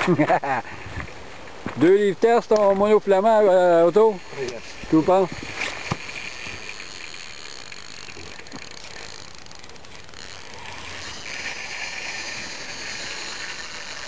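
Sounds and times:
fishing reel clicking: 3.6s - 14.0s.

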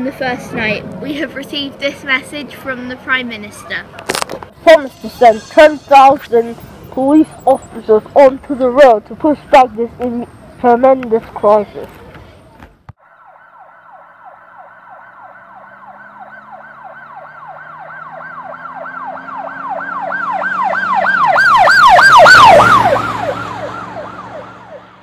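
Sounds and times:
emergency siren yelping: 13.0s - 25.0s.

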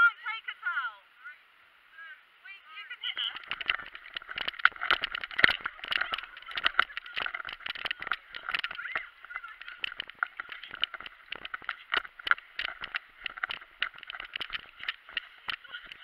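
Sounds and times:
camera pole knocks and rubbing: 3.2s - 16.0s.

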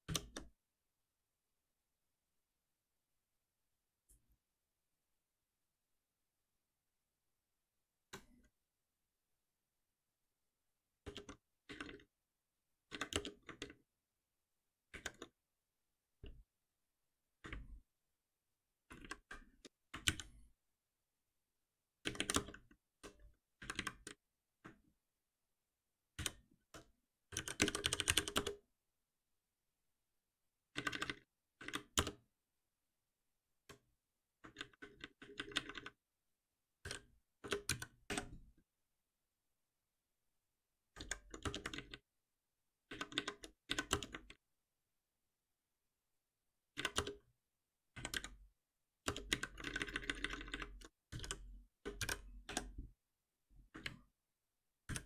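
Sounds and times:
computer keyboard typing: 0.0s - 0.5s, 11.0s - 12.1s, 12.9s - 13.8s, 14.9s - 15.4s, 18.9s - 20.5s, 22.0s - 24.2s, 26.1s - 28.6s, 30.7s - 32.2s, 34.4s - 36.0s, 36.8s - 38.4s, 40.9s - 42.0s, 42.9s - 44.4s, 46.8s - 47.2s, 47.9s - 48.4s, 49.0s - 52.9s.

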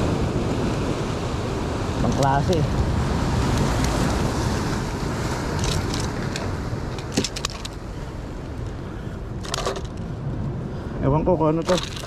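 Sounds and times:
sea surf: 0.0s - 12.0s
wind rumbling on microphone: 0.0s - 12.0s
light clicks and rattles: 5.5s - 7.8s, 9.4s - 10.1s, 11.6s - 12.0s.

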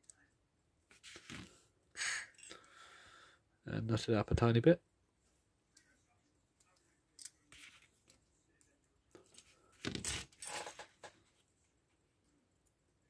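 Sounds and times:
small metallic clicks and scraping: 6.6s - 11.2s
metal parts clattering: 9.9s - 10.9s.

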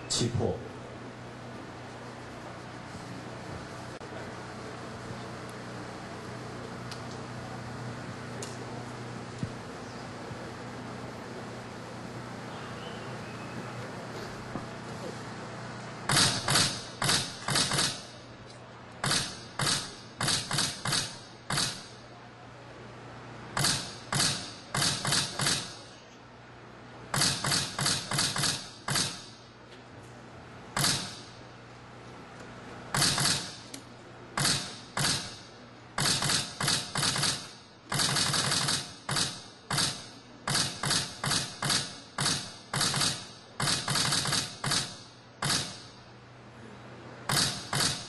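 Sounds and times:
camera shutter clicks: 16.1s - 18.0s, 19.0s - 21.9s, 23.6s - 25.7s, 30.8s - 31.3s, 33.0s - 33.6s, 34.4s - 35.4s, 36.0s - 45.9s, 47.3s - 48.0s.

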